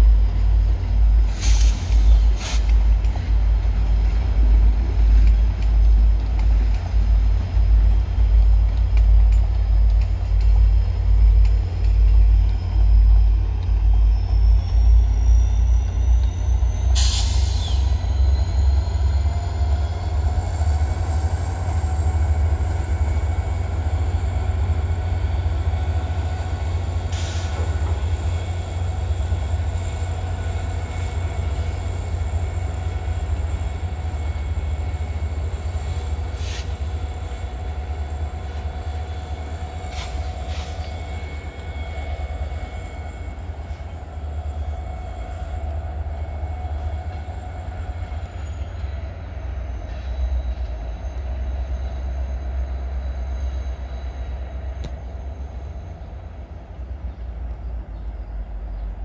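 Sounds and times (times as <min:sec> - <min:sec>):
train low rumble: 0:00.0 - 0:59.0
short air hisses: 0:01.3 - 0:02.8, 0:17.0 - 0:17.9, 0:36.4 - 0:36.8.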